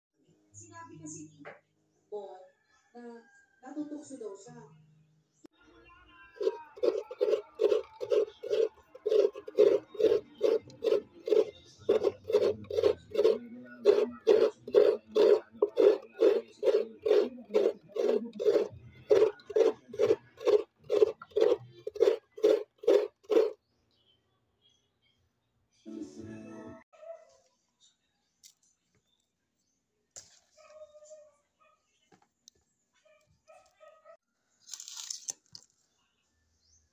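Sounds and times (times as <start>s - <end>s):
coconut rasping on a grater: 6.4s - 23.6s.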